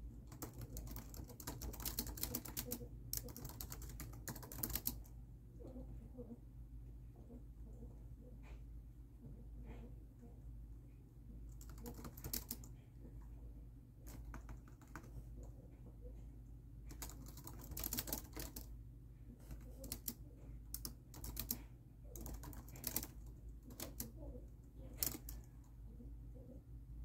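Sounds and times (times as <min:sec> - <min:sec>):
steady low hum: 0:00.0 - 0:27.0
laptop keyboard typing: 0:00.3 - 0:05.1, 0:11.6 - 0:12.7, 0:14.1 - 0:15.2, 0:16.9 - 0:18.7, 0:19.5 - 0:25.5.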